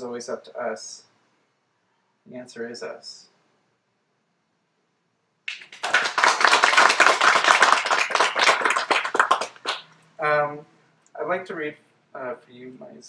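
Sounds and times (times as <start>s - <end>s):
audience applauding: 5.5s - 9.9s.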